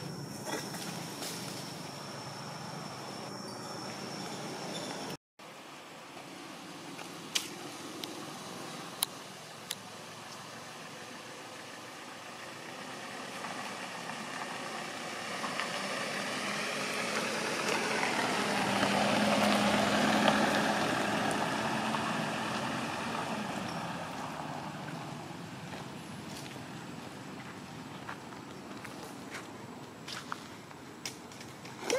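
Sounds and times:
vehicle engine passing by: 0:06.5 - 0:27.2.

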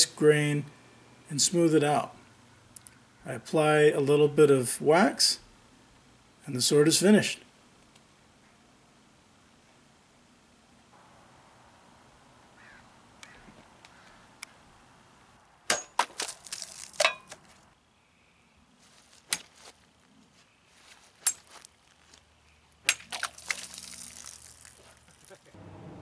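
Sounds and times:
liquid splashing onto board: 0:22.9 - 0:25.2.

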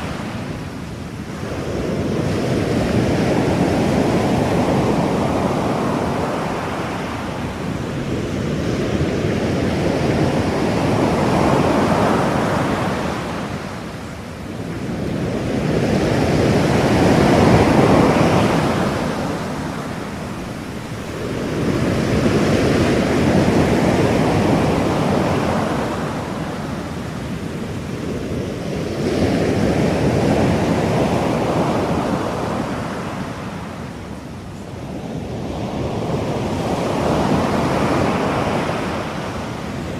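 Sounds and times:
ocean waves washing: 0:00.0 - 0:39.9.

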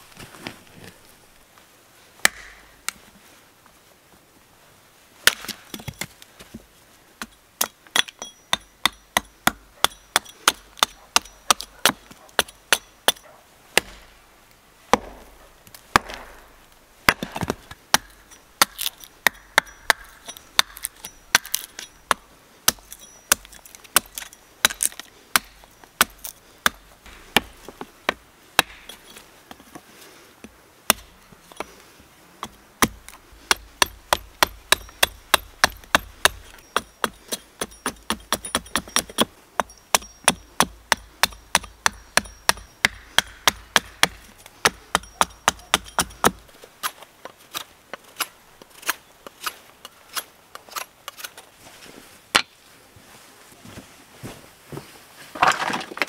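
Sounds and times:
hatchet chopping wood: 0:02.2 - 0:02.6, 0:05.2 - 0:06.1, 0:07.2 - 0:13.2, 0:13.8 - 0:14.1, 0:14.9 - 0:29.0, 0:30.9 - 0:31.8, 0:32.4 - 0:47.6
wood splitting crackles: 0:14.9 - 0:29.8, 0:55.3 - 0:56.0.

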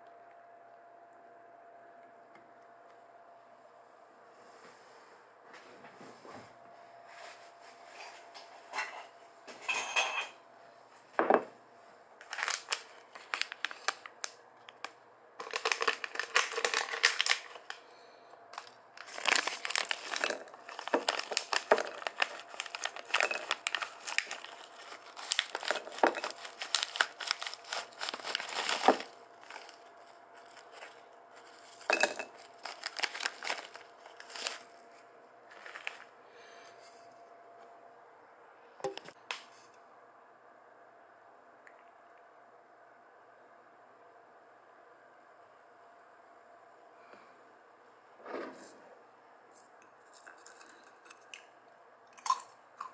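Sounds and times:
plastic bag crinkling: 0:12.2 - 0:17.8, 0:18.5 - 0:36.1, 0:50.0 - 0:51.4
peanuts rattling in ceramic bowl: 0:15.4 - 0:17.6, 0:18.6 - 0:29.8, 0:31.6 - 0:34.6.

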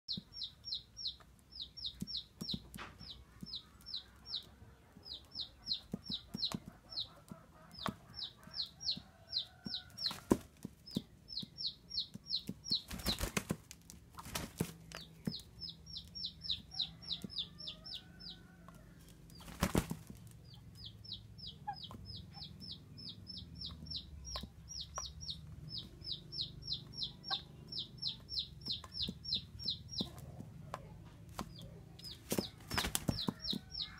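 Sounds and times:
small bird chirping: 0:00.1 - 0:33.9
rooster wings flapping: 0:12.8 - 0:14.8, 0:19.4 - 0:20.3, 0:32.2 - 0:33.4.

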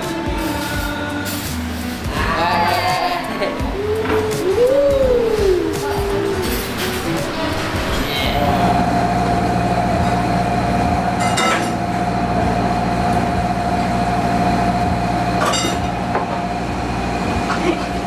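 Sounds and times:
gas stove drone and whine: 0:00.0 - 0:18.0.

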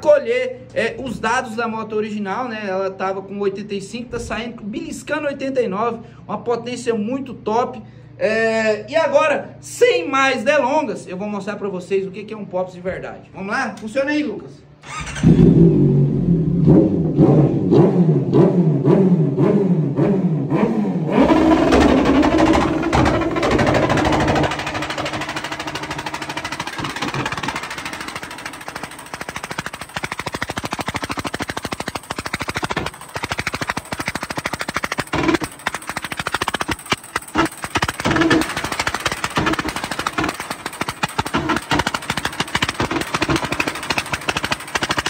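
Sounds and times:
motorcycle engine revving: 0:14.8 - 0:45.0
exhaust crackling and popping: 0:21.2 - 0:45.0.

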